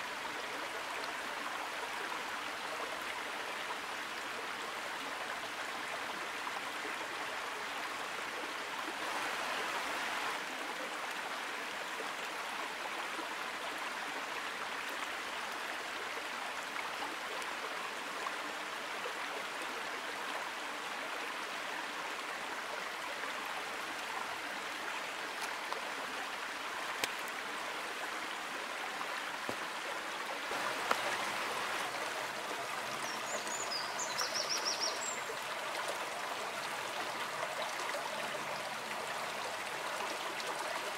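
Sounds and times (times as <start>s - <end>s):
stream flowing over rocks: 0.0s - 40.9s.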